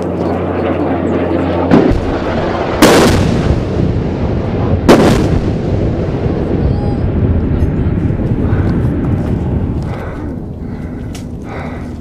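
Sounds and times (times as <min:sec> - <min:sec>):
bombs exploding with echo: 0:01.7 - 0:07.4.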